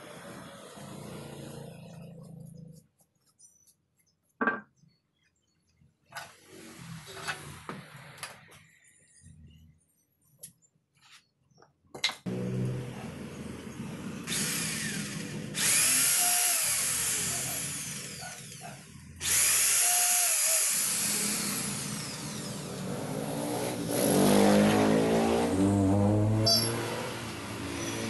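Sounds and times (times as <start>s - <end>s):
electric drill boring into wood: 14.2s - 23.8s.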